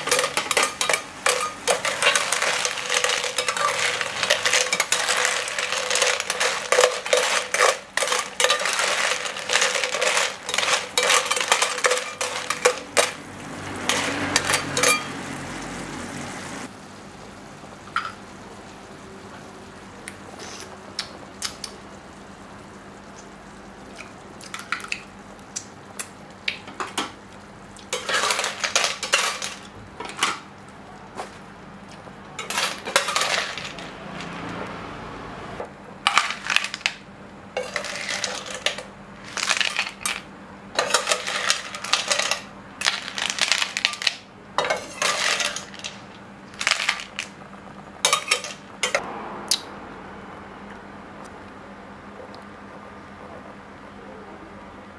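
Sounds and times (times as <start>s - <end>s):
metal spatula scraping pan: 0.0s - 13.1s.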